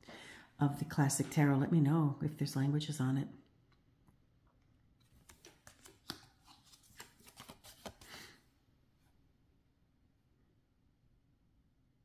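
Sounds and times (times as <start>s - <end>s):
cards clicking and sliding: 5.0s - 8.3s.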